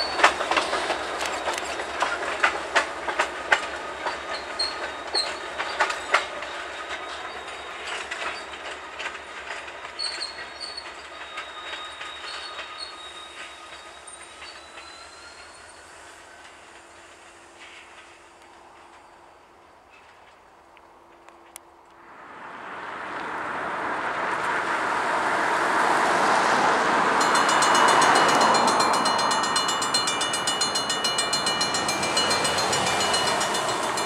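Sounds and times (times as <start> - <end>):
wheel squeaks: 0.0 - 2.6, 3.6 - 15.9, 27.2 - 34.0
train wheels clicking over rail joints: 0.0 - 15.5, 27.2 - 34.0.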